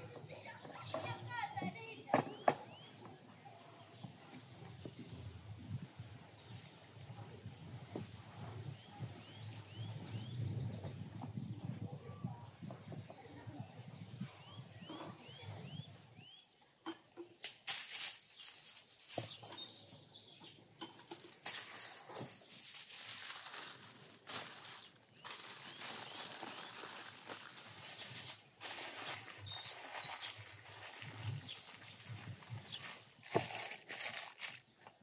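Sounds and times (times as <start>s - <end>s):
aluminium foil crinkling: 5.1s - 8.1s, 16.0s - 19.9s, 21.0s - 35.0s.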